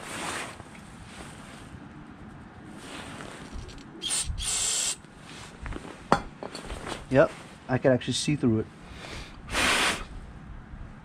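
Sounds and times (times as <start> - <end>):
aerosol spray hissing: 4.0 - 5.0.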